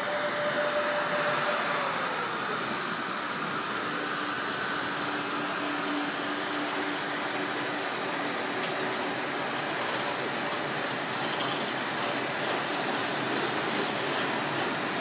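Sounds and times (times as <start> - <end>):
electric locomotive hum: 0.0 - 15.0
wagon wheels rolling on rails: 3.6 - 15.0.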